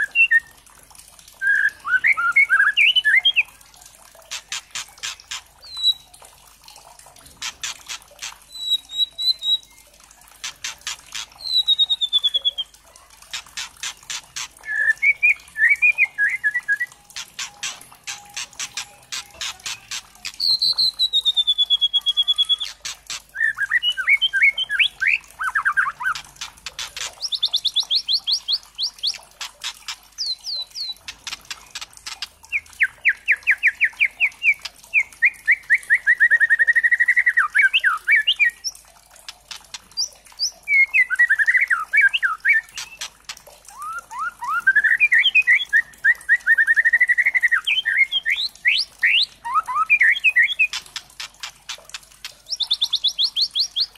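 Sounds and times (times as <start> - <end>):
bird singing whistles and trills: 0.0 - 0.5, 1.4 - 3.5, 4.5 - 6.2, 7.4 - 9.9, 10.6 - 12.8, 13.4 - 26.3, 26.9 - 29.2, 30.2 - 38.8, 39.9 - 43.1, 43.7 - 50.8, 52.3 - 53.9
bird clicking rattles: 4.0 - 9.2, 10.2 - 12.0, 13.0 - 14.8, 16.9 - 21.7, 22.4 - 23.5, 25.0 - 34.9, 39.1 - 40.6, 42.6 - 44.0, 50.6 - 53.8.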